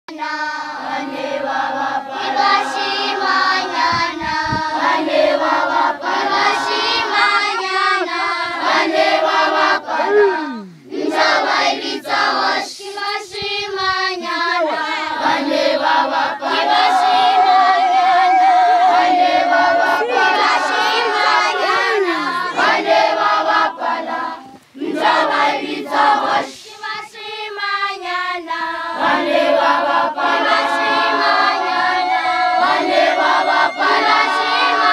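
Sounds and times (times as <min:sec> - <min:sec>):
children singing together: 0:00.1 - 0:34.9
long wavering high note: 0:30.7 - 0:34.9.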